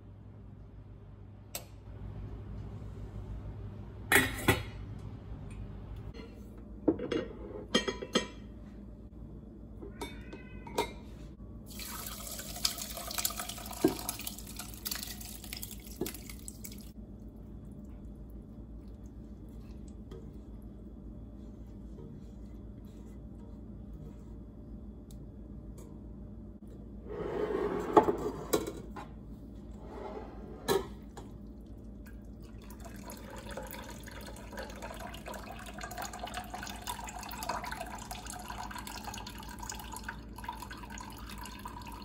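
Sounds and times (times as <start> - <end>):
liquid splashing and draining: 11.7 - 20.1, 31.1 - 42.0.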